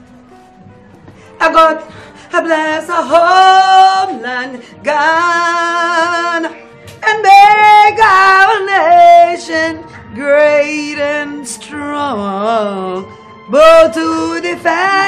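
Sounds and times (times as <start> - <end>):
person singing unaccompanied anthem: 1.4 - 15.0.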